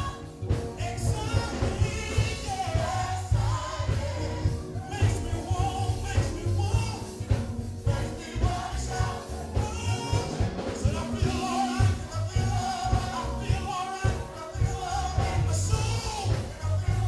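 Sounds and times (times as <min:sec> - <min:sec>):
man singing into a microphone: 0:00.0 - 0:03.3, 0:04.7 - 0:07.4, 0:08.0 - 0:17.0
band with steady bass beat: 0:00.0 - 0:17.0
group singing: 0:00.0 - 0:17.0.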